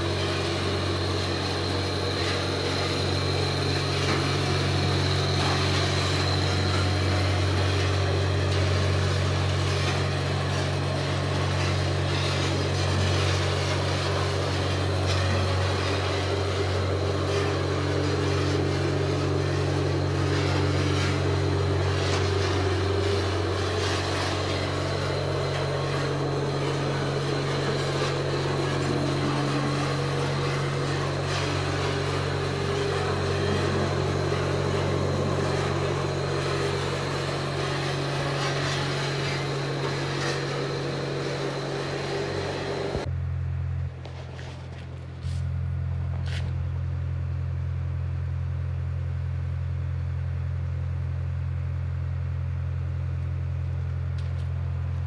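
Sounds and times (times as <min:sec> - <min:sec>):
gas burner hissing: 0:00.0 - 0:43.1
motor low hum: 0:00.0 - 0:55.0.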